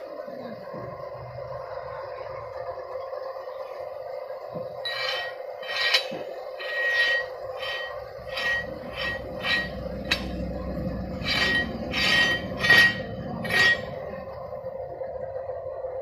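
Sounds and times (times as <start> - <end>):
low steady hum: 0.0 - 16.0
metal rod scraping in pipe: 4.8 - 14.2.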